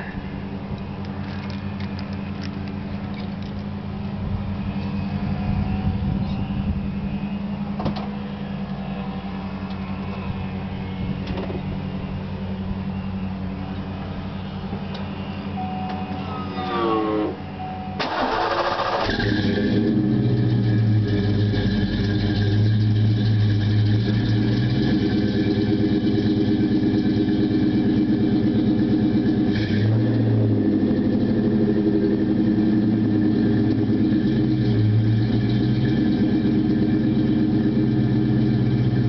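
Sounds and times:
car engine idling: 0.0 - 16.6, 17.2 - 39.0.

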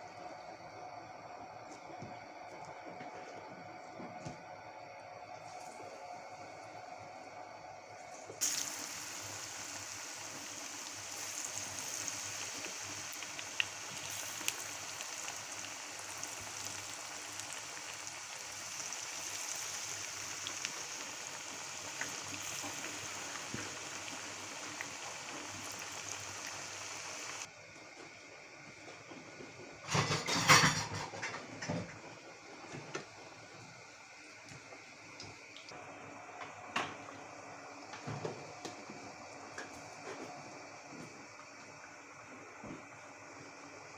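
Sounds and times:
oil sizzling with small pops: 8.0 - 27.5, 28.6 - 43.9.

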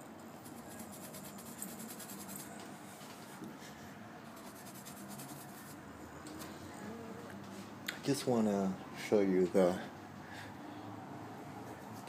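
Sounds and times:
charcoal scratching on canvas: 0.4 - 2.5, 4.4 - 5.8.

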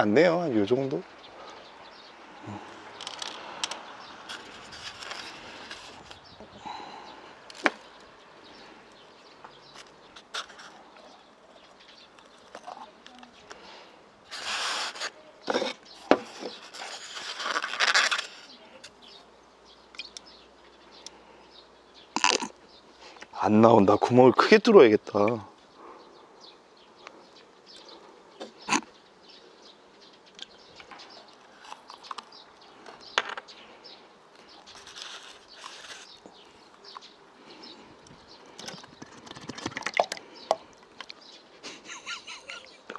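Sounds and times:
eggshell clicking and cracking: 38.5 - 41.2.

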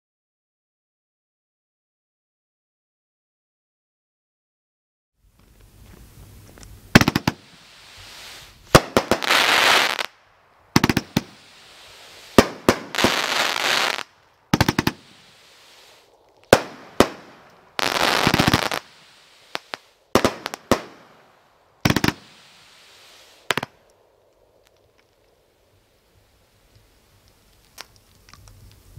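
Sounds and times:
firework noisy burst: 6.9 - 10.2, 10.8 - 23.7
firework cake shots: 7.0 - 10.2, 10.8 - 23.8.

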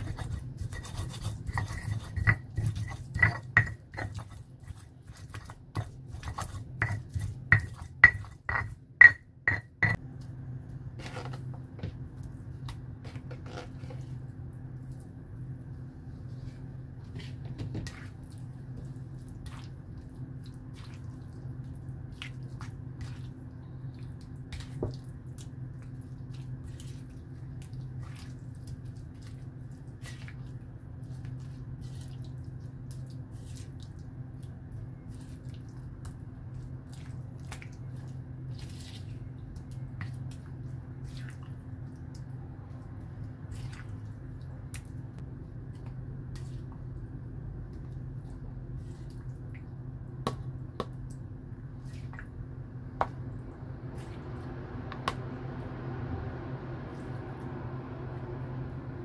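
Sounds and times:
spoon stirring wet paste: 0.0 - 10.4
steady low hum: 0.0 - 59.0.

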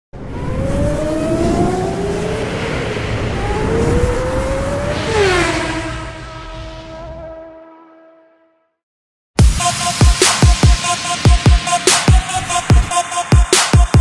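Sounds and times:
race car engine revving: 0.2 - 7.1.

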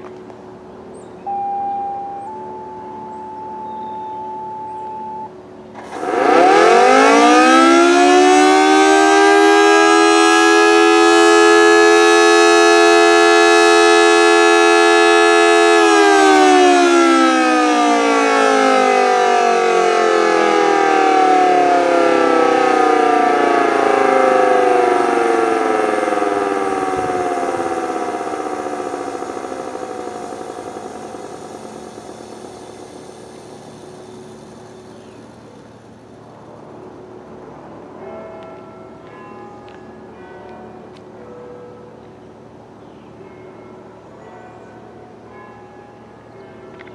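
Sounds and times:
two-tone siren: 1.2 - 36.2.

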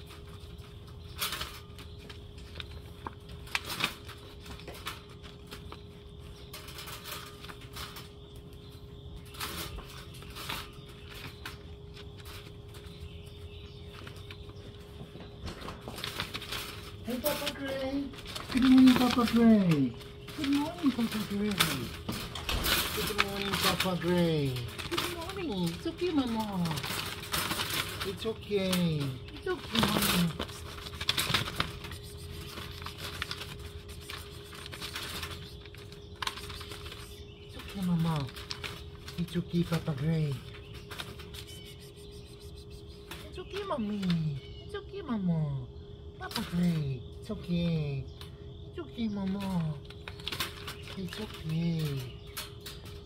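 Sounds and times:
cat rustling in wire trap: 0.0 - 8.6, 15.5 - 44.2
steady hum: 0.0 - 53.0.

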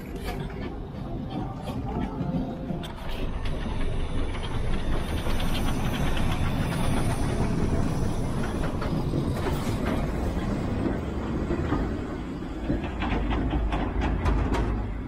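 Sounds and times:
steam locomotive passing: 0.0 - 15.0
wagons clattering along track: 0.0 - 15.0
steam hissing: 2.9 - 12.8.

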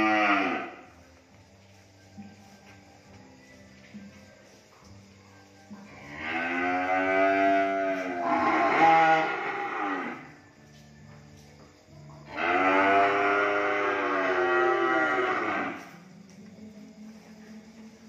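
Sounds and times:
calves mooing: 0.0 - 0.8, 6.0 - 10.3, 12.3 - 15.9.

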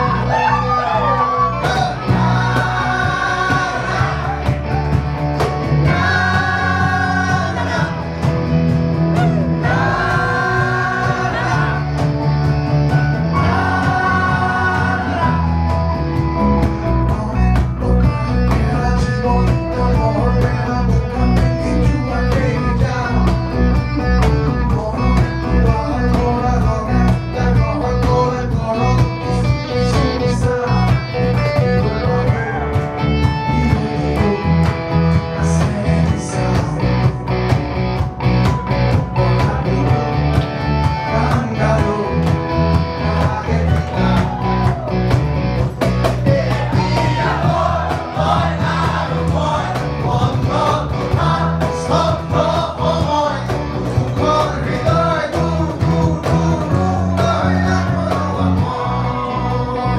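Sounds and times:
man singing: 0.0 - 4.6, 5.8 - 8.3, 9.2 - 12.1, 13.3 - 15.7, 16.6 - 37.2, 38.9 - 44.9, 46.0 - 59.9
electric guitar: 0.0 - 59.9
percussion beat: 1.6 - 29.3, 40.3 - 58.8.

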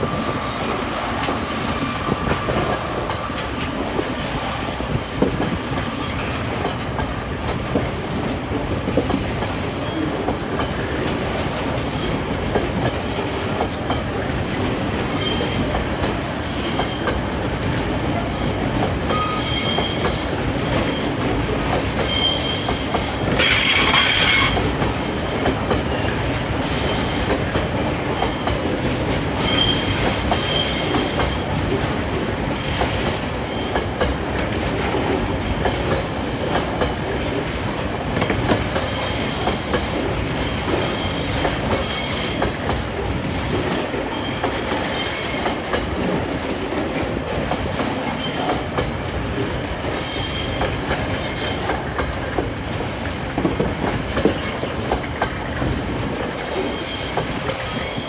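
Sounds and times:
high-pitched wheel squeals: 22.1 - 24.8.

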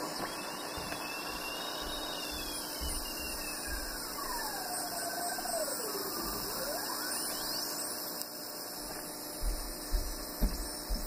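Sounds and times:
heterodyne whistle: 0.0 - 7.9
static hiss: 0.0 - 11.0.

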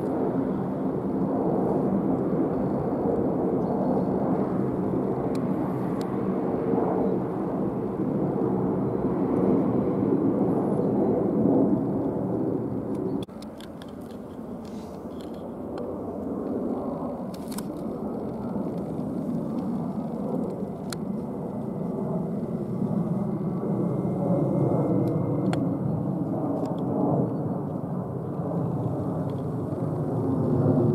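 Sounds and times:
jet engine rumble overhead: 0.0 - 30.9.

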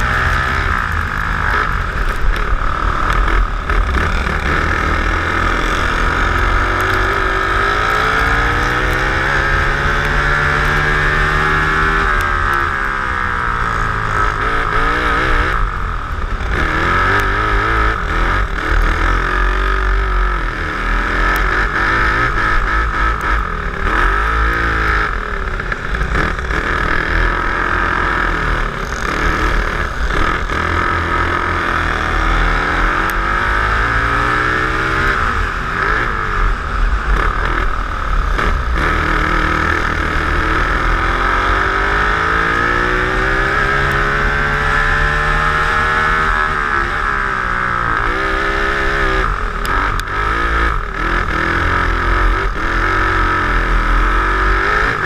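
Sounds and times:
kart engines revving: 0.0 - 55.0.

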